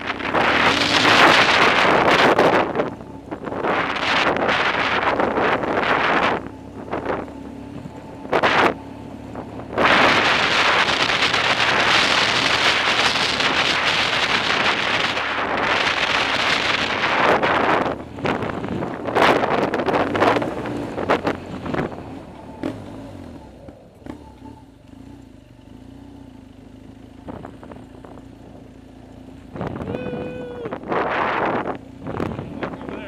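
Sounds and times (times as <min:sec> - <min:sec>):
wind rushing over microphone: 0:00.0 - 0:22.8, 0:29.5 - 0:33.0
motorcycle engine running: 0:00.0 - 0:33.0.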